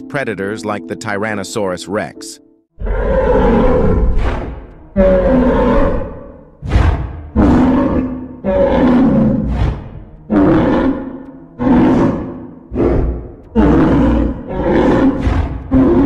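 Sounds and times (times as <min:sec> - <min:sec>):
low roaring creature bellows: 0:02.8 - 0:16.0.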